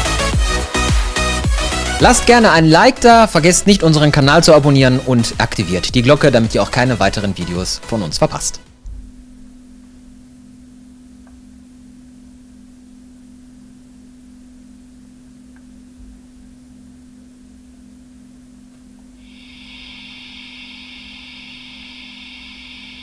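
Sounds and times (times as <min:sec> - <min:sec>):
faint steady hum: 0:08.7 - 0:23.0
model steam locomotive hiss: 0:19.2 - 0:23.0.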